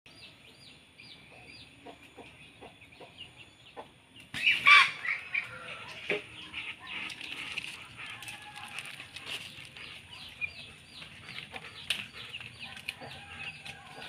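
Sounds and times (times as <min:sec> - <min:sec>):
small birds chirping: 0:00.1 - 0:14.0
chickens clucking: 0:01.3 - 0:14.0
chicken squawking: 0:04.4 - 0:05.7.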